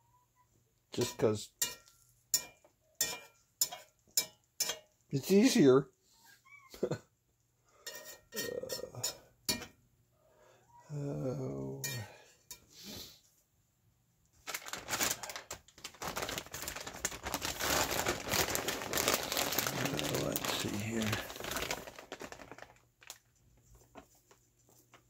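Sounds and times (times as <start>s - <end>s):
metal spatula scraping skillet: 1.6s - 5.5s, 7.8s - 9.8s
dense crackling: 14.6s - 23.2s.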